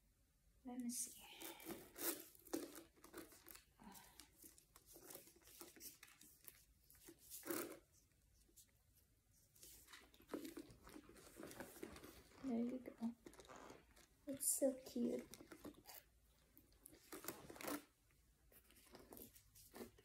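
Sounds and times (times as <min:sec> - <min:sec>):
backpack straps rustling: 0:01.4 - 0:07.8, 0:09.6 - 0:14.2, 0:16.9 - 0:17.9.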